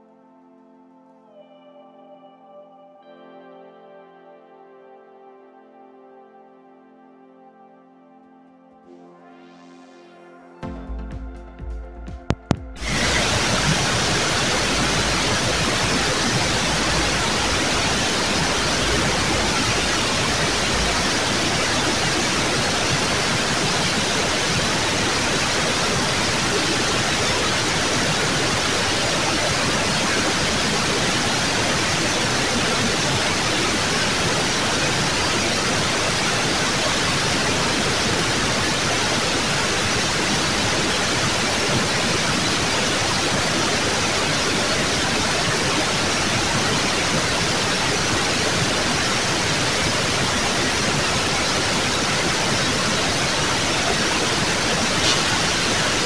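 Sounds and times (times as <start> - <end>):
waterfall rushing: 12.8 - 56.0.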